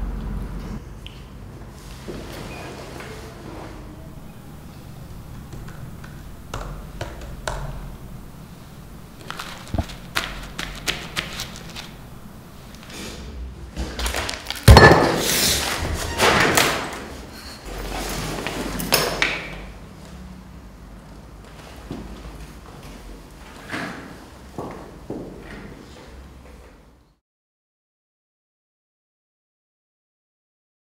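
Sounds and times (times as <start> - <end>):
loud thud: 14.6 - 15.6.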